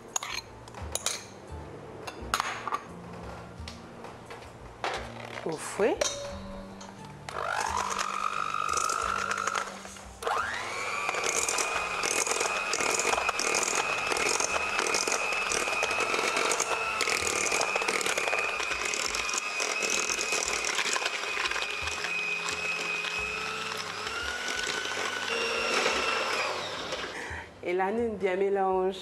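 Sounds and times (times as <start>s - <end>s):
beaters scraping in metal bowl: 7.3s - 10.1s, 10.8s - 27.1s
electric hand mixer whine: 7.3s - 27.4s.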